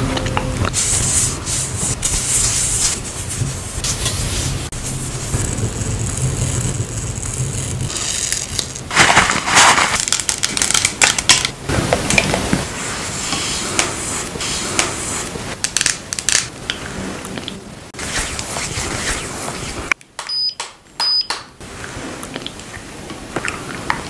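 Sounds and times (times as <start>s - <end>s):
containers crackling and clicking: 5.1s - 12.6s, 15.6s - 17.6s.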